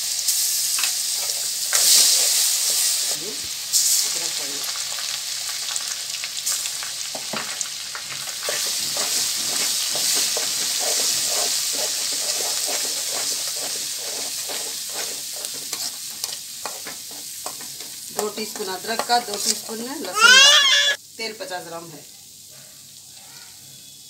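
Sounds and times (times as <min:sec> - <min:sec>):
paste sizzling in hot oil: 0:00.0 - 0:24.0
metal spoon scraping a pan: 0:00.8 - 0:03.0, 0:08.3 - 0:20.6.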